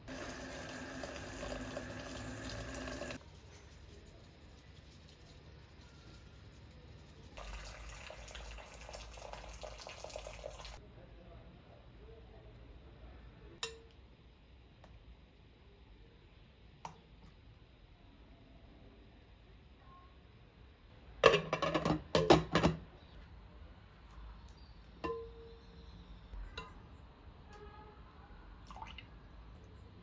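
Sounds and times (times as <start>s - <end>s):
water running: 0.0s - 3.3s, 7.2s - 10.8s.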